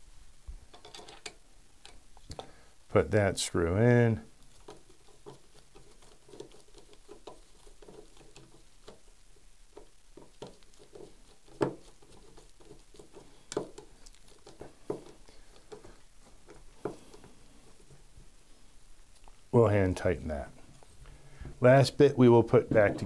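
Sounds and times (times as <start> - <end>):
small clicks taps and scratches: 0.7 - 2.5, 4.3 - 18.0, 19.1 - 19.5.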